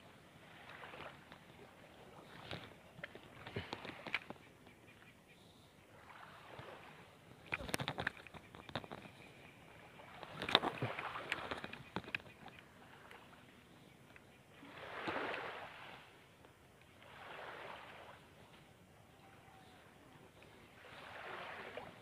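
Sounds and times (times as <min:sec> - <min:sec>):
small waves washing in: 0:00.0 - 0:04.2, 0:05.9 - 0:07.6, 0:09.6 - 0:11.7, 0:14.5 - 0:16.3, 0:16.9 - 0:22.0.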